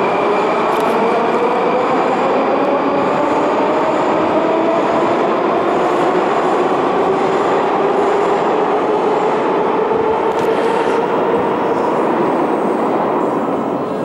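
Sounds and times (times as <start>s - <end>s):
train wheels rumbling on track: 0.0s - 14.0s.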